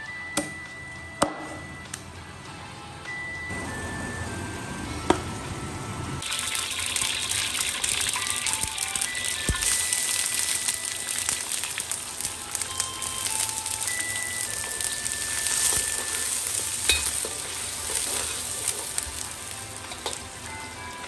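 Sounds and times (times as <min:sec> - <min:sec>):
ginger sizzling in hot oil: 0:06.2 - 0:21.0
metal ladle clanking against wok: 0:16.8 - 0:19.0.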